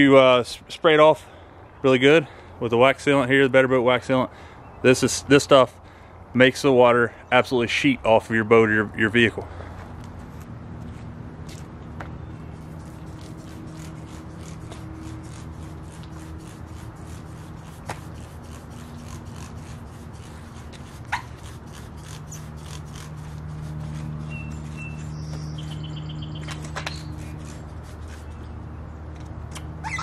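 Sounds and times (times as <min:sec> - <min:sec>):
spray bottle squirting: 0:12.6 - 0:25.4
bird chirps: 0:24.2 - 0:27.3, 0:29.8 - 0:30.0.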